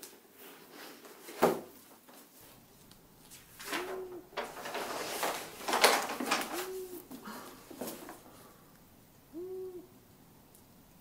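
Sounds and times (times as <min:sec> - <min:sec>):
book pages turning: 0:02.4 - 0:08.2
owl hooting: 0:03.6 - 0:04.6, 0:06.4 - 0:10.3.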